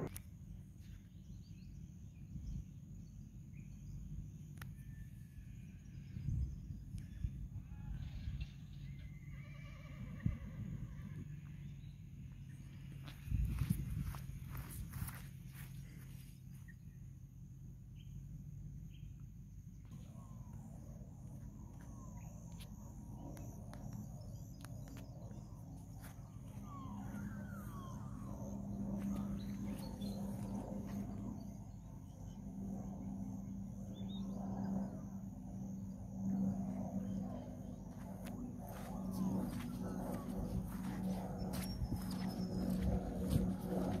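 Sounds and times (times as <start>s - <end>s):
distant aircraft engine droning: 0.0s - 44.0s
birds chirping: 24.3s - 31.6s.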